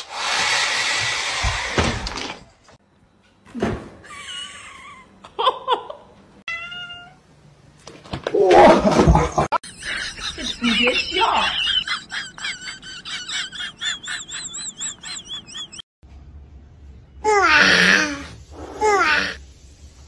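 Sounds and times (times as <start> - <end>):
hair dryer blowing: 0.0 - 1.9
cat meowing: 6.5 - 7.2.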